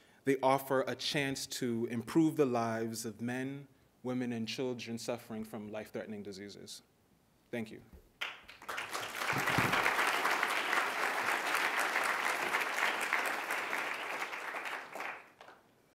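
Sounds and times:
audience applauding: 0:08.2 - 0:15.7.

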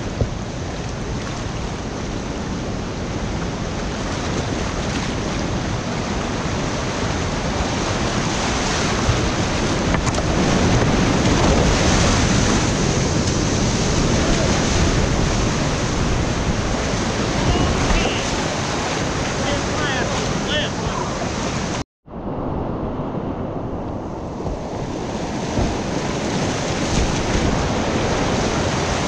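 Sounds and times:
whitewater rapids rushing: 0:07.6 - 0:21.8, 0:24.8 - 0:29.0.

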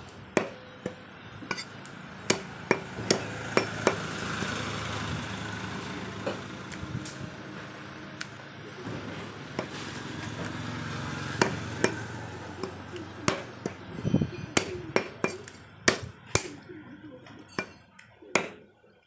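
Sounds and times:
knife chopping on wooden block: 0:17.6 - 0:18.6.

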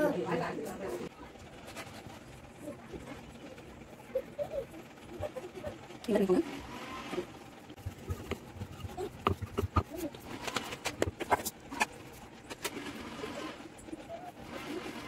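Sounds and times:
rolling pin rolling dough: 0:07.0 - 0:15.0.

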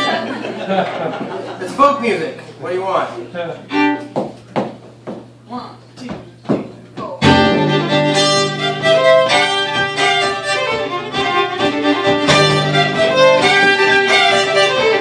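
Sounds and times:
fiddles and double bass folk tune: 0:00.0 - 0:00.8, 0:03.6 - 0:04.3, 0:07.2 - 0:15.0.

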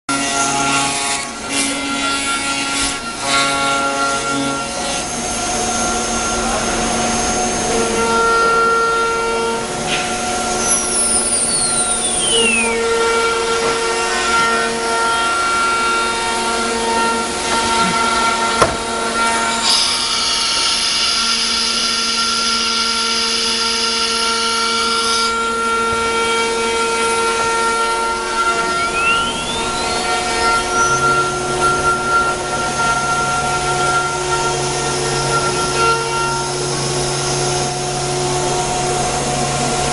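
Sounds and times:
rasp of cutting wood: 0:00.1 - 0:05.2, 0:16.0 - 0:28.8
high-pitched spindle whine: 0:00.1 - 0:18.0, 0:19.1 - 0:39.9
whine gliding down in pitch: 0:04.3 - 0:13.6, 0:27.1 - 0:39.9
rising whine: 0:04.4 - 0:12.9, 0:27.0 - 0:39.9.

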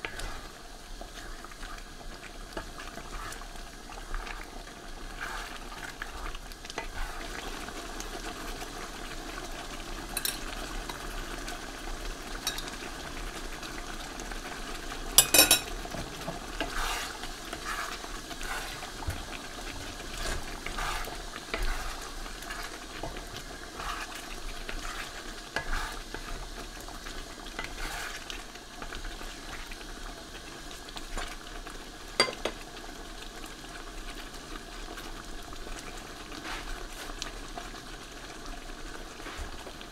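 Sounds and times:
sauce simmering and bubbling: 0:00.0 - 0:39.9
wooden spatula scraping pan: 0:05.0 - 0:06.2, 0:06.8 - 0:07.6, 0:15.4 - 0:26.6, 0:27.4 - 0:28.4, 0:36.3 - 0:37.2, 0:38.9 - 0:39.8.

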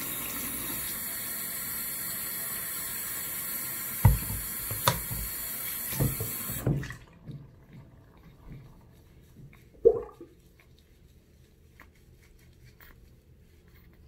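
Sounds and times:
faucet water pouring into basin: 0:00.0 - 0:08.7.

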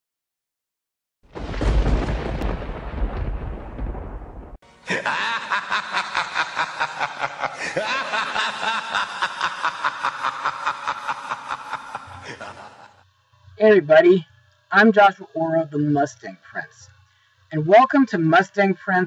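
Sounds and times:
thunder-like rumble: 0:01.4 - 0:04.6.

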